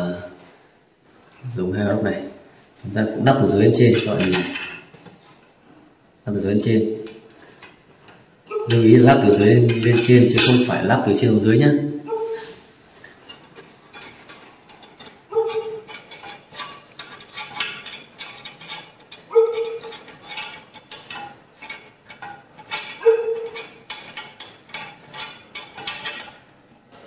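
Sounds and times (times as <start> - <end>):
bolts and nuts clinking: 3.8 - 5.2, 7.0 - 11.2, 13.0 - 27.0.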